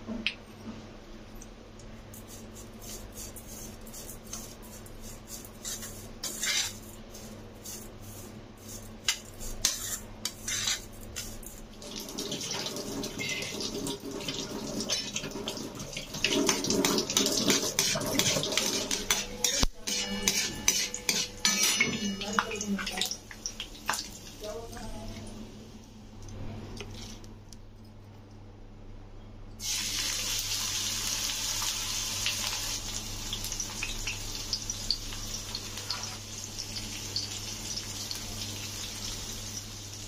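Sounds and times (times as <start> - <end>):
spoon scraping steel bowl: 2.3 - 11.3, 16.4 - 22.4
peanuts sizzling in oil: 29.6 - 40.0.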